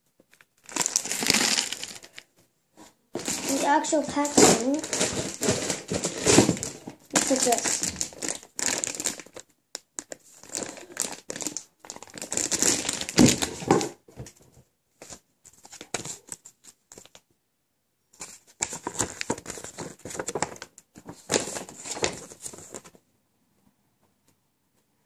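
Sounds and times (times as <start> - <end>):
plastic bag crinkling: 0.5 - 2.3, 3.2 - 13.9
paper leaflet rustling: 3.2 - 8.8, 18.2 - 23.0.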